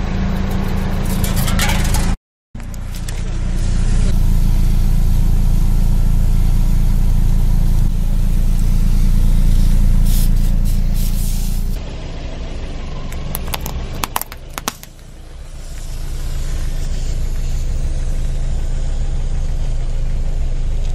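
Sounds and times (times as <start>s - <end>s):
car engine idling: 2.6s - 20.9s
can spraying with hiss: 8.2s - 11.8s, 14.7s - 18.2s.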